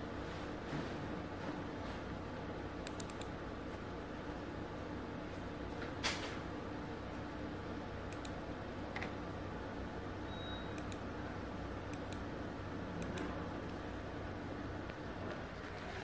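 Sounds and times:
steady low hum: 0.0s - 16.0s
computer mouse clicking: 2.8s - 3.3s, 8.1s - 9.1s, 10.8s - 11.0s, 11.9s - 12.2s, 13.0s - 13.8s.

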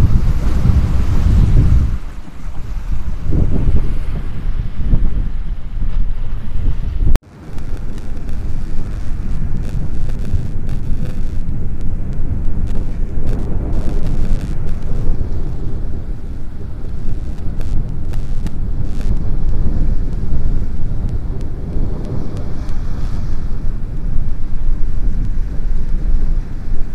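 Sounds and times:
surf washing against boulders: 0.0s - 26.9s
wind rumble on microphone: 0.0s - 26.9s.

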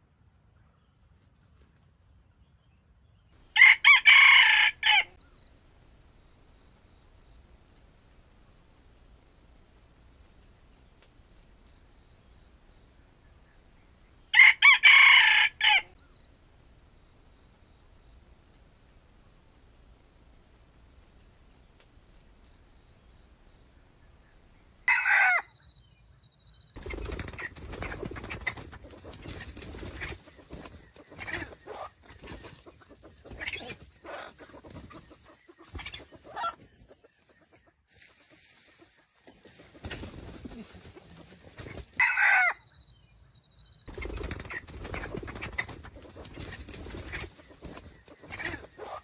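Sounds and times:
rooster crowing: 3.5s - 5.2s, 14.3s - 16.0s, 24.8s - 25.5s, 42.0s - 42.6s
chicken clucking: 26.8s - 42.6s, 43.9s - 49.0s
dry leaves rustling: 39.4s - 42.0s.

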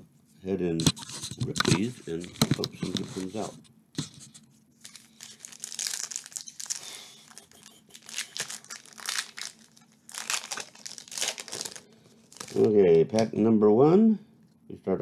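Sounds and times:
wrappers crinkling and tearing: 4.8s - 13.3s.

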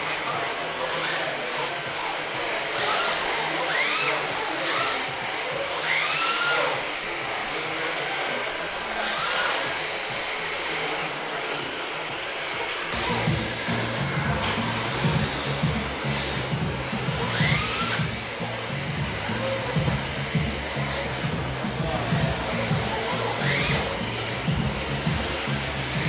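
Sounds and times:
rc car motors whining: 0.0s - 26.0s.

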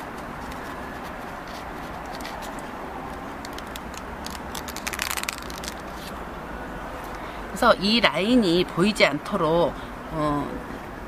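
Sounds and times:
hands handling braid trim: 0.0s - 6.2s
steady background hiss: 0.0s - 11.0s.

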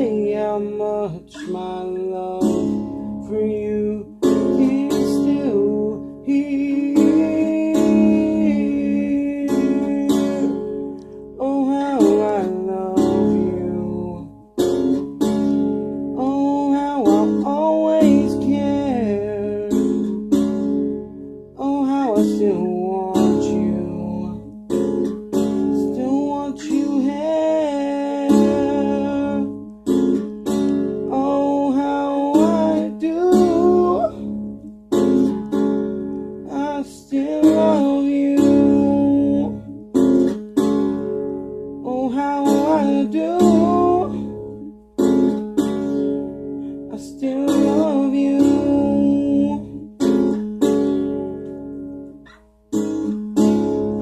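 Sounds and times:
man singing: 0.0s - 14.4s, 16.1s - 20.2s, 21.6s - 24.6s, 25.6s - 29.7s, 31.0s - 34.5s, 36.4s - 40.0s, 41.8s - 44.8s, 46.9s - 50.4s
strummed guitar: 0.0s - 54.0s.

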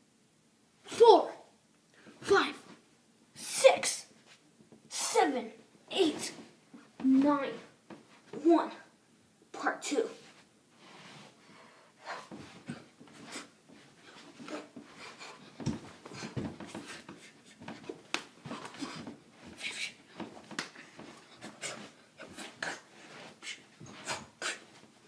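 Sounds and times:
boy breathing: 10.8s - 24.8s
sleeves swishing: 12.0s - 25.0s
feet thudding on floor: 12.3s - 25.0s.

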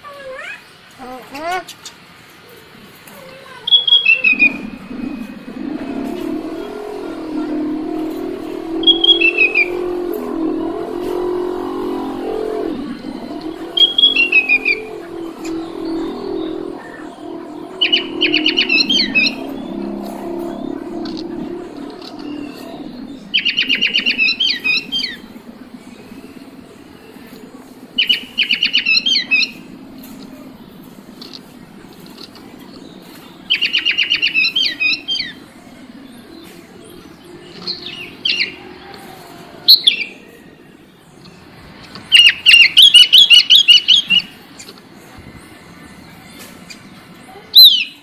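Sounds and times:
bird singing: 3.6s - 48.0s
steady low hum: 3.7s - 42.1s.

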